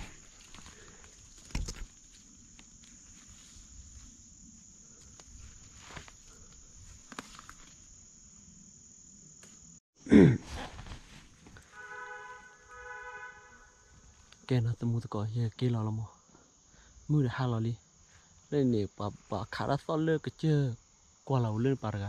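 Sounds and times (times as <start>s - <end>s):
insect chorus buzzing: 0.0s - 22.0s
rustling steps through brush: 10.5s - 11.8s.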